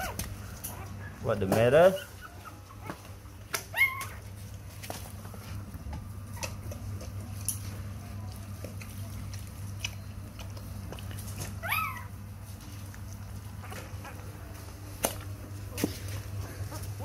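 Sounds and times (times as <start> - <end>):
puppy whimpering: 0.0 - 4.5, 6.3 - 6.8, 11.1 - 12.2, 13.5 - 14.5
steady low hum: 0.0 - 17.0.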